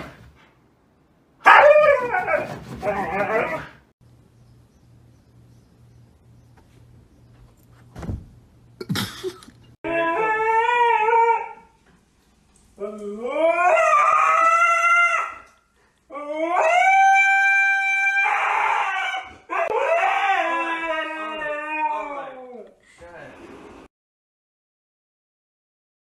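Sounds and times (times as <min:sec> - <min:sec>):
husky howling: 0:01.5 - 0:03.8, 0:09.8 - 0:11.7, 0:12.8 - 0:15.5, 0:16.1 - 0:22.7.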